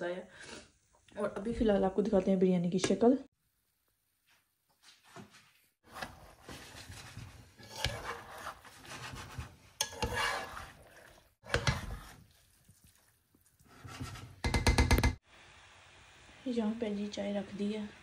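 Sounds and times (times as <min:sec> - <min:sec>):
spatula scraping rice in pot: 0:05.9 - 0:13.0, 0:13.6 - 0:14.4.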